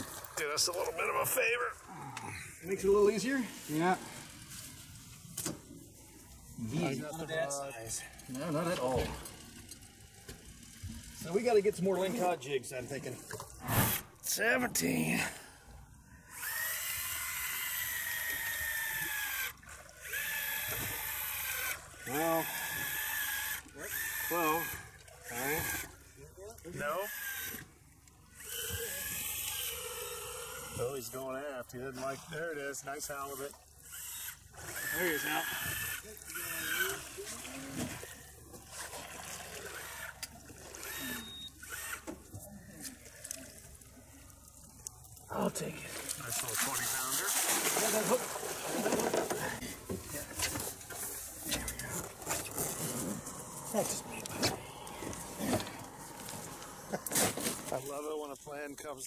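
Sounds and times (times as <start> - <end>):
fishing reel whirring: 7.8 - 11.8, 16.1 - 26.0, 27.0 - 31.2, 33.2 - 38.4, 39.1 - 42.4
water lapping against boat: 32.0 - 58.5.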